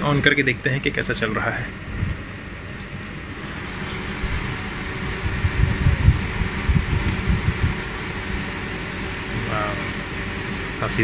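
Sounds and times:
table fan blowing air: 0.0 - 11.0
wind buffeting microphone: 1.7 - 10.4.

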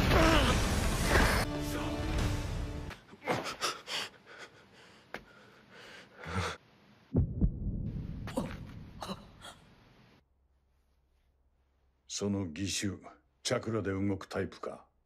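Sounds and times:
low thuds: 7.1 - 9.0.

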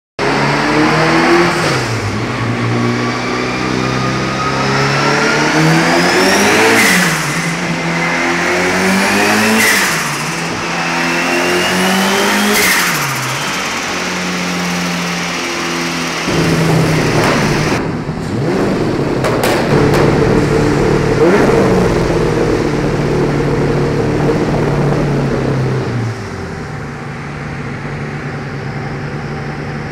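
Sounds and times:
turbocharged engine revving: 0.2 - 29.6
sharp bang: 16.2 - 21.4.

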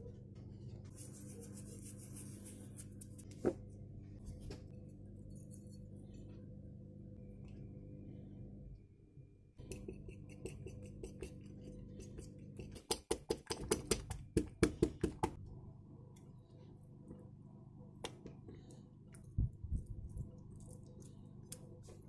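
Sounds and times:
fork scraping and tapping: 9.6 - 13.7.

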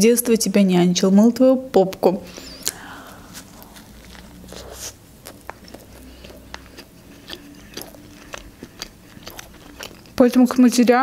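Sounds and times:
biting into soft bun: 2.6 - 10.2
chewing mouth clicks and smacks: 2.6 - 10.2.

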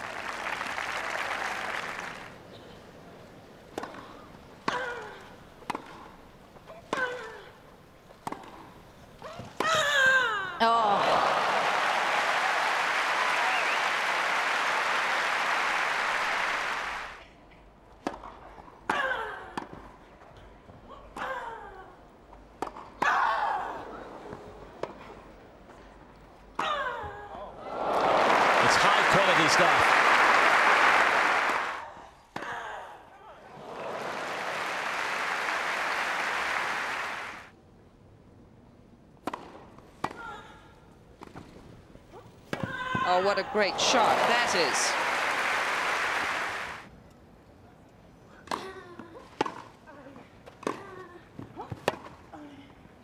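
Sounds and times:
crowd applause: 0.0 - 2.4, 10.7 - 17.2, 27.6 - 31.8, 33.5 - 37.5, 43.1 - 46.9.

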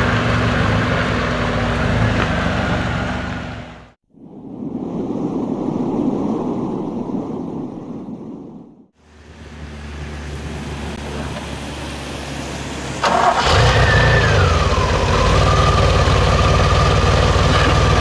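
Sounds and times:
car engine starting and idling: 9.4 - 18.0.

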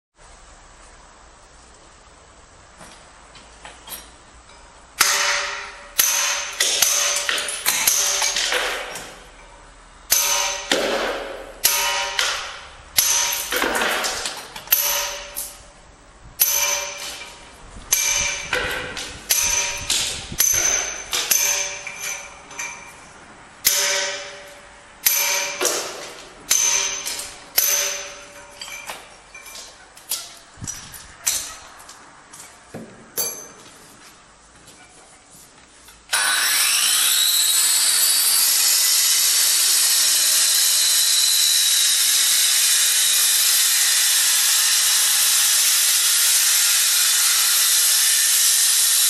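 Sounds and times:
hammer striking chisel into stone: 5.0 - 9.5, 10.1 - 15.6, 16.4 - 23.0, 23.6 - 30.4.

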